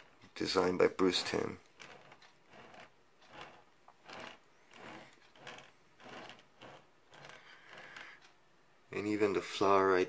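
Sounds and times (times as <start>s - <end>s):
turntable soft rubbing: 0.8s - 8.2s.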